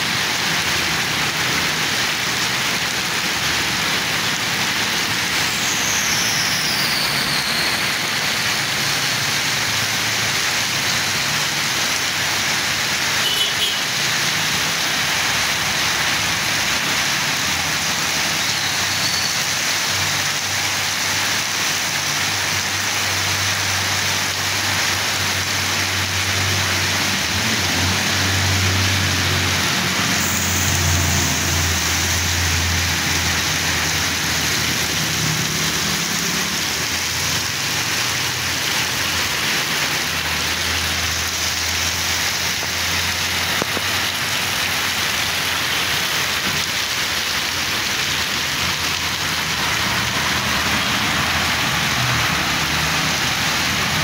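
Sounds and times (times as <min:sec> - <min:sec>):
heavy rain pouring on road: 0:00.0 - 0:54.0
traffic driving through water: 0:00.0 - 0:54.0
truck engine hum: 0:25.9 - 0:44.3.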